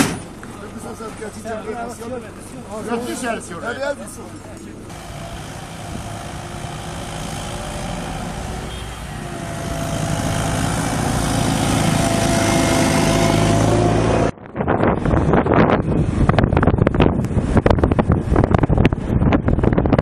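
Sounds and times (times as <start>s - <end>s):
heavy vehicle engine passing: 4.9s - 14.4s
wind buffeting microphone: 9.2s - 20.0s.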